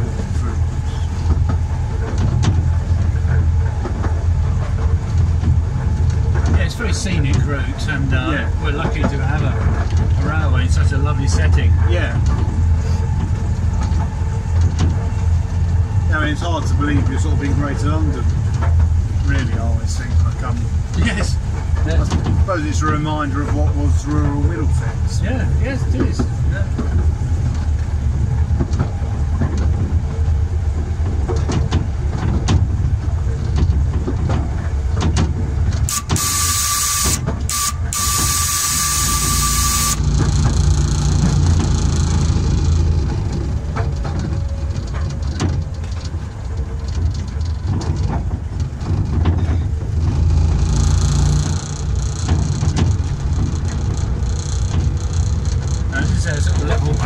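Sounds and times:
locomotive rumbling: 0.0s - 57.0s
wheels clicking on rail joints: 0.0s - 57.0s
hissing signal blast: 35.9s - 40.1s.

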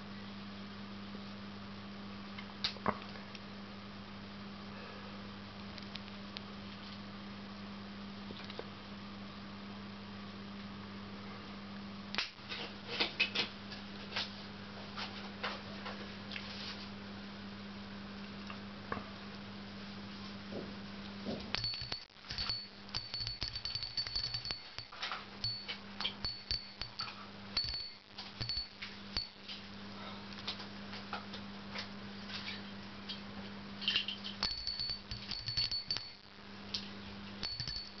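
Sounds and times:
small metal bell jingling: 21.6s - 29.4s, 34.4s - 36.3s, 37.4s - 38.0s.

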